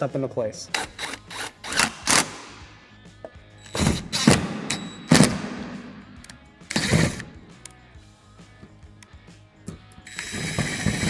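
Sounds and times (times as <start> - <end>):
cordless impact tool driving bolts: 0.7 - 2.6, 3.6 - 5.8, 6.7 - 7.4, 10.1 - 11.0.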